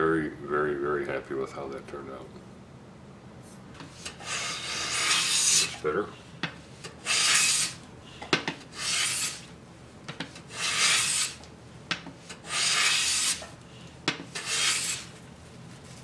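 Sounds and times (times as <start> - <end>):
hand plane shaving wood: 3.9 - 5.8, 7.0 - 7.8, 8.7 - 9.4, 10.5 - 11.4, 12.4 - 13.5, 14.3 - 15.1.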